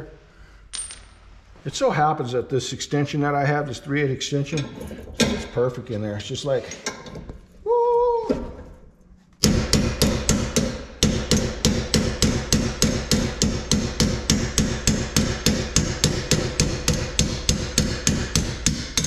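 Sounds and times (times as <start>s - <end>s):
hammer striking metal punch: 9.4s - 19.0s.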